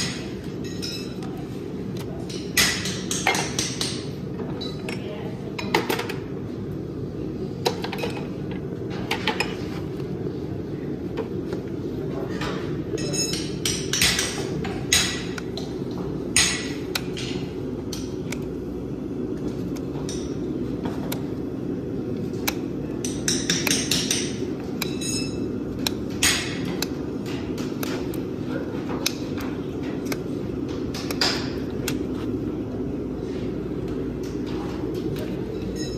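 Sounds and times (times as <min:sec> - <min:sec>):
steady low hum: 0:00.0 - 0:35.9.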